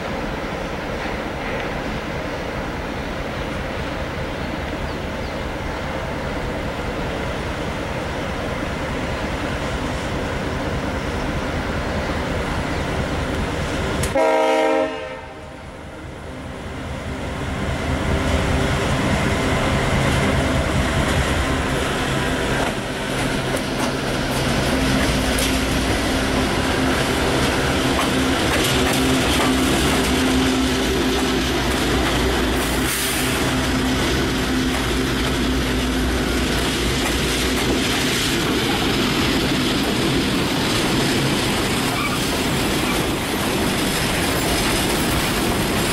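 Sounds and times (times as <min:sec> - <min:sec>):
locomotive engine rumble: 0:00.1 - 0:45.9
train wheels clickety-clack: 0:00.9 - 0:01.9, 0:18.6 - 0:45.9
locomotive horn blast: 0:14.0 - 0:15.6.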